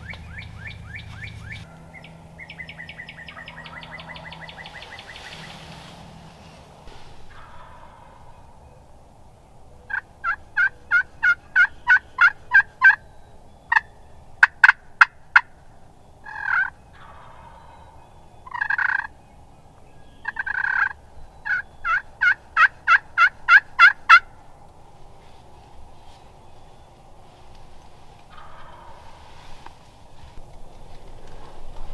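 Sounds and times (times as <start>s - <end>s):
turkey yelping: 0.0s - 6.2s, 6.9s - 8.9s, 9.8s - 19.1s, 20.1s - 24.4s, 27.6s - 29.8s
turkey clucks: 0.0s - 9.1s, 9.8s - 31.9s
turkey long calls: 0.0s - 31.6s.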